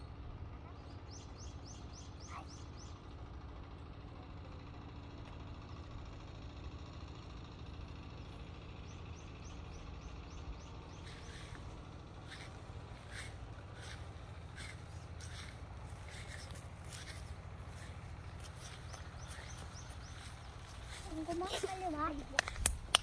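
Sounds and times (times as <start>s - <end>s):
songbird singing: 0.0s - 3.2s, 8.0s - 23.0s.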